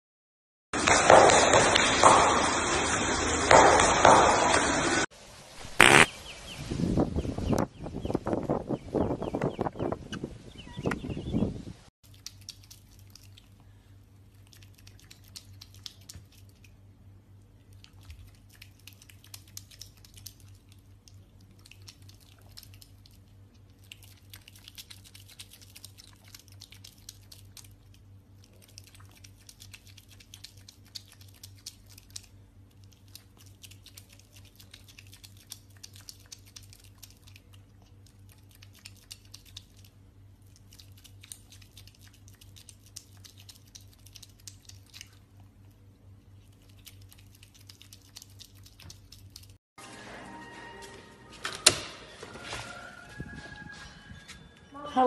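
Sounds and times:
otter crunching dry kibble: 12.0s - 49.6s
steady low hum: 12.5s - 52.3s.

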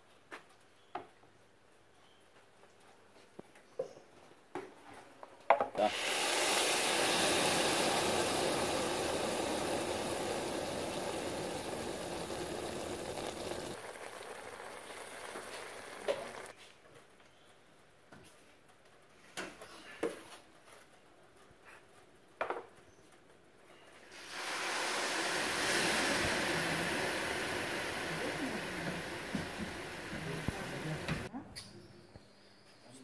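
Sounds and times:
syrup sizzling on pastry: 5.8s - 16.6s, 24.1s - 31.3s.

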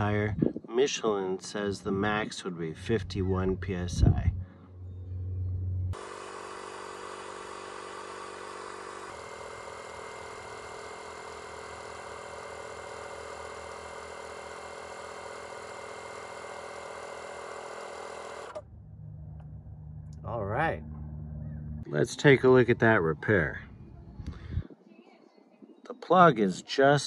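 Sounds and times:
tire inflator compressor running: 4.4s - 21.8s.

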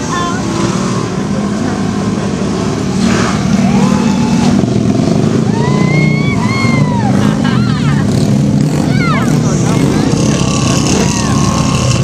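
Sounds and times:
utv engines running loudly: 0.0s - 12.0s
high rising and falling tone: 2.4s - 12.0s.

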